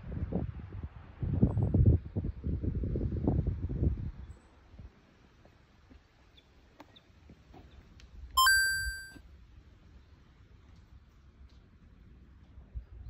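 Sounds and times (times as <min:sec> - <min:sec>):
bright chime sound effect: 0:08.4 - 0:09.2.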